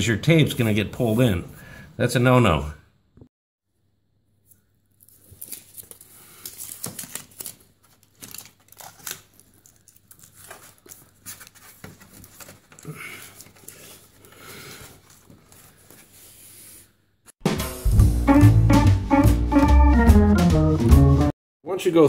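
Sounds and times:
foil tape crinkling: 0:04.9 - 0:14.2.

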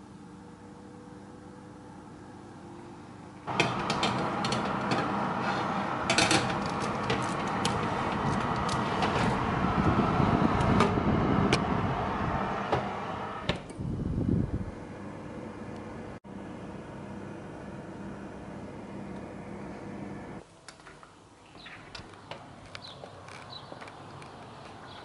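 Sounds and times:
oven fan whirring: 0:00.0 - 0:20.4
baking tray sliding onto rack: 0:03.5 - 0:09.4.

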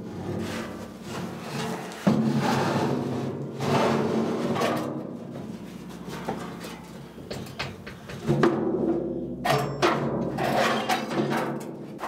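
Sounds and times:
metal scraping and rubbing: 0:10.3 - 0:11.6.

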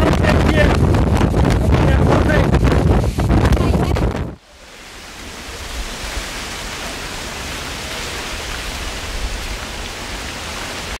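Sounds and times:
strong wind buffeting microphone: 0:00.0 - 0:06.7.

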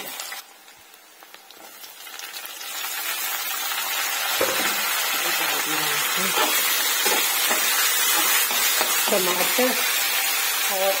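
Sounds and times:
tomatoes sizzling in hot oil: 0:00.0 - 0:11.0.

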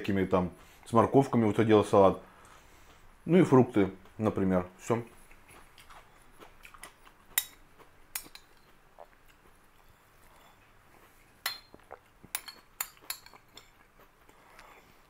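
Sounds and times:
spoon clinking on glass bowl: 0:11.4 - 0:13.6.

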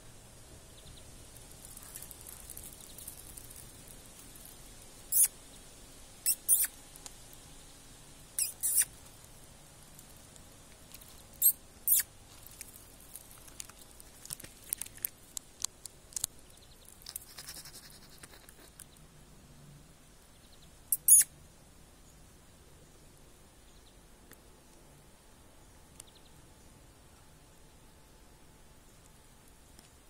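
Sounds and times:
nestlings squeaking: 0:01.5 - 0:05.4, 0:06.2 - 0:07.0, 0:08.3 - 0:09.3, 0:10.0 - 0:19.0, 0:20.9 - 0:21.3.

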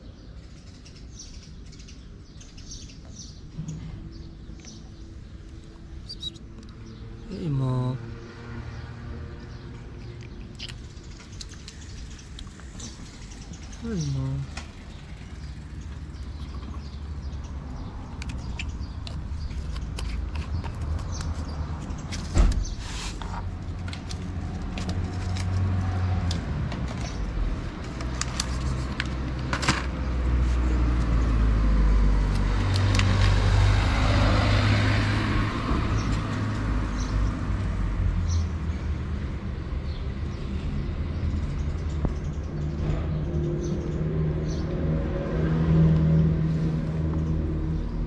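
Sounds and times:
low traffic rumble: 0:00.0 - 0:48.0
car passing: 0:05.0 - 0:10.0, 0:11.0 - 0:19.5, 0:30.0 - 0:41.7, 0:42.7 - 0:48.0.

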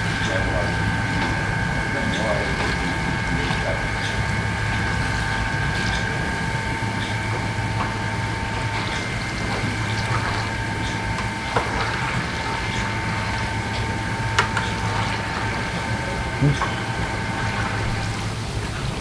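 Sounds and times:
dough frying in oil: 0:00.0 - 0:19.0
steady machine hum: 0:00.0 - 0:19.0.

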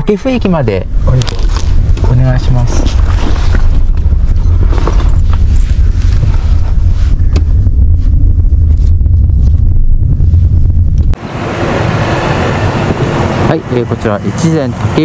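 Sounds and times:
wind: 0:00.0 - 0:15.0
road and engine noise in car cabin: 0:08.7 - 0:15.0
road traffic: 0:10.1 - 0:15.0.

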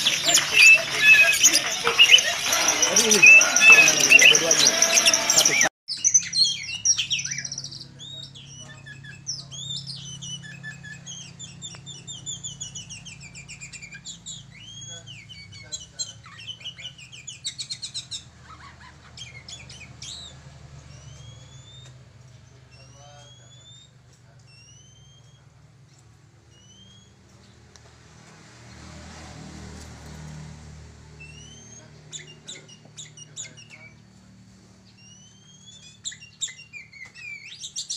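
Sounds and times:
bird singing whistles and trills: 0:00.0 - 0:18.2, 0:19.2 - 0:21.9, 0:22.7 - 0:25.5, 0:26.5 - 0:27.2, 0:31.2 - 0:34.0, 0:35.0 - 0:37.9.

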